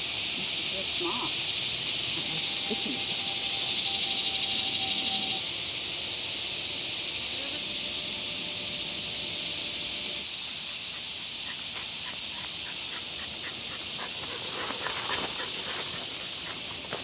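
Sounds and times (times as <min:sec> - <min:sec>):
cicada chorus drone: 0:00.0 - 0:17.0
footsteps in dry leaves: 0:13.6 - 0:17.0.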